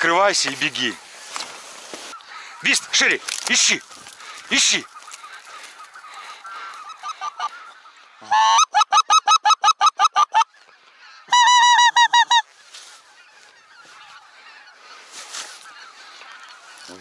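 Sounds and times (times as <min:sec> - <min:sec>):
distant geese calling: 0:00.0 - 0:17.0.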